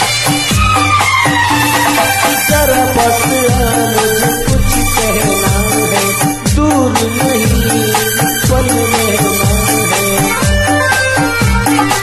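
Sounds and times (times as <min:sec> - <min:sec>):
synth melody notes: 0:01.4 - 0:07.9
electronic kick drum: 0:02.5 - 0:07.7.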